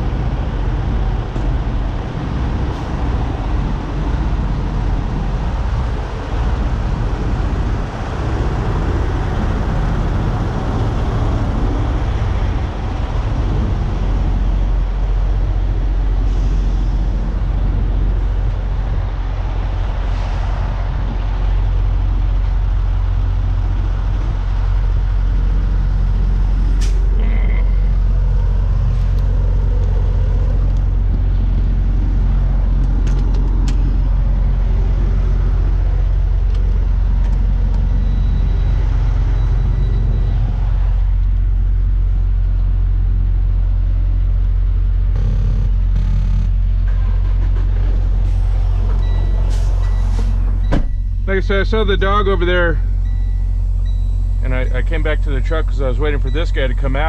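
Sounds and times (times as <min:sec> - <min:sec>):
diesel truck engine idling: 0:00.0 - 0:57.0.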